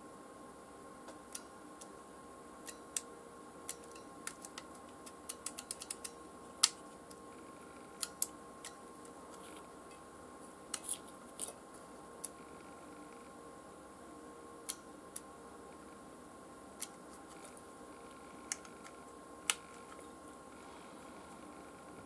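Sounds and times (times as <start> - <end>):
faint steady tone: 5.4 - 22.0.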